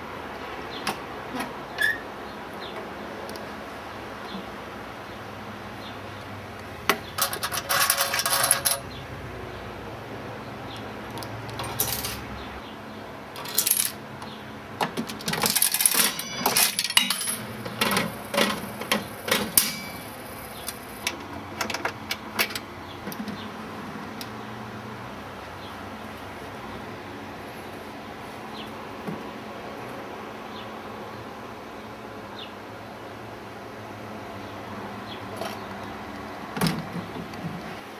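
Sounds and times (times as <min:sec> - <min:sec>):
slot machine metallic clicking: 0:11.5 - 0:12.2, 0:13.4 - 0:14.0, 0:15.3 - 0:21.1.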